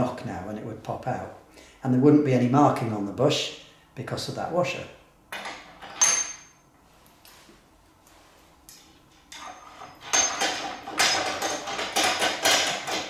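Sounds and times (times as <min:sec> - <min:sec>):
nut rattling along a threaded screw: 0:08.8 - 0:13.0.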